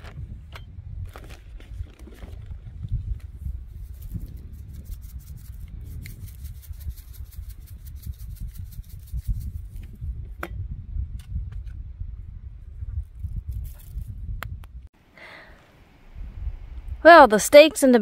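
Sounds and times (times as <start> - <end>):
spice shaker rattling: 3.8 - 9.8
steady low rumble: 15.6 - 17.1.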